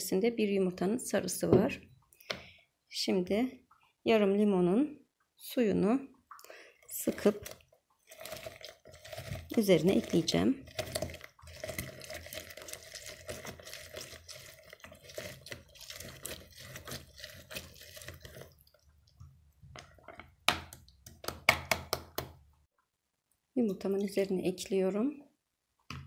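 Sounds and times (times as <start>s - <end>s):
lemon squelching on citrus juicer: 6.9s - 21.0s.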